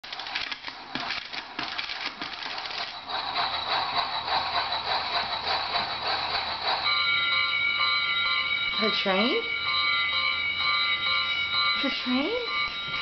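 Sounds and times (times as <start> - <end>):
spinning top whirring: 0.1 - 13.0
thin high tone: 6.8 - 13.0.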